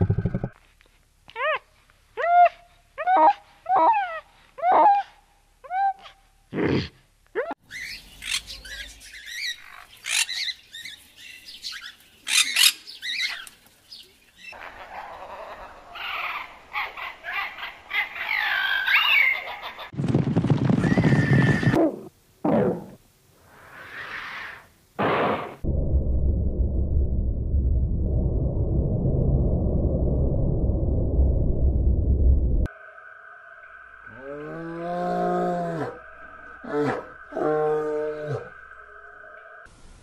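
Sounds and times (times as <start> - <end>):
animal chirps and squawks: 14.5 - 19.8
loud full animal call: 32.7 - 39.7.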